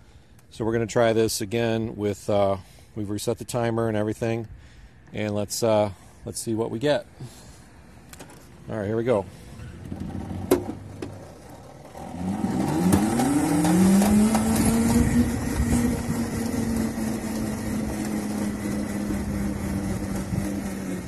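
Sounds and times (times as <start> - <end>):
road and drivetrain rumble: 7.1 - 21.0
electric motor whining: 11.4 - 21.0.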